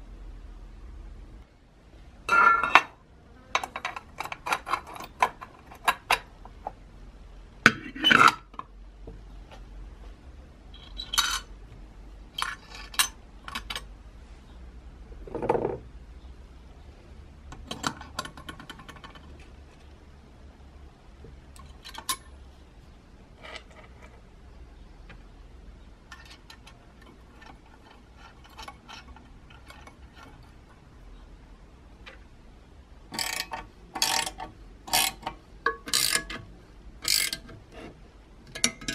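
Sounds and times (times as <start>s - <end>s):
dull metal scrape: 26.1s - 30.7s, 37.1s - 38.0s.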